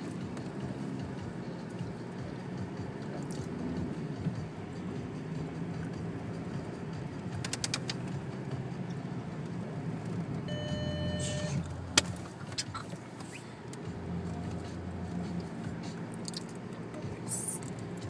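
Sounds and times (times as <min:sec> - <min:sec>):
car engine running: 0:00.0 - 0:18.0
clicks and rattles: 0:07.3 - 0:08.1
steady beep: 0:10.5 - 0:11.6.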